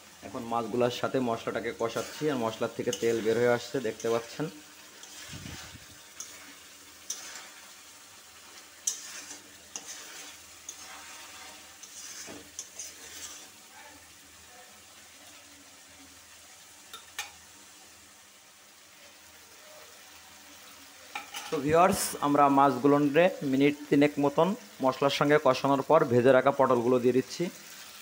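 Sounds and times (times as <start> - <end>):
faint frying sizzle: 0.0 - 28.0
spatula scraping metal pan: 1.5 - 13.7.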